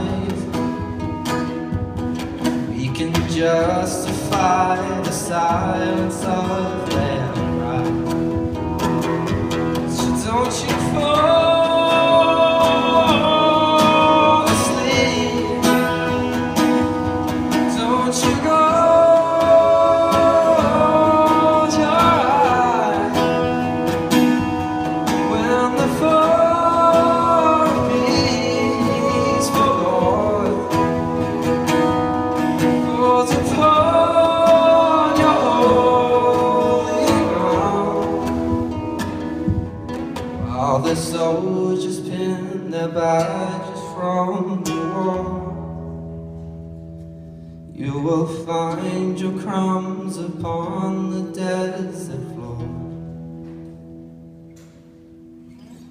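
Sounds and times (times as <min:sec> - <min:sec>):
looped guitar: 0:00.0 - 0:55.9
person singing wordless vocals: 0:02.7 - 0:08.2, 0:09.9 - 0:39.2, 0:40.4 - 0:45.6.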